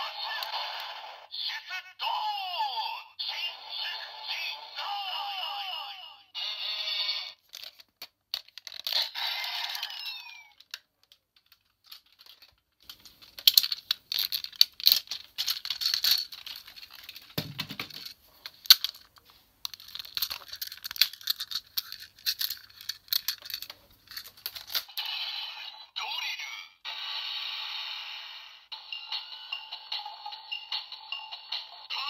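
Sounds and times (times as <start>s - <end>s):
toy electronic sound: 6.3s - 7.4s, 8.9s - 10.6s, 24.9s - 30.2s
plastic toy parts clicking: 7.4s - 25.0s.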